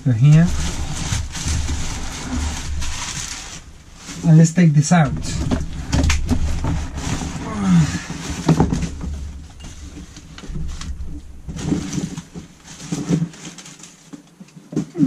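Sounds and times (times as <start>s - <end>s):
packaging rustling and crinkling: 0.0s - 14.9s
handling knocks: 4.9s - 15.0s.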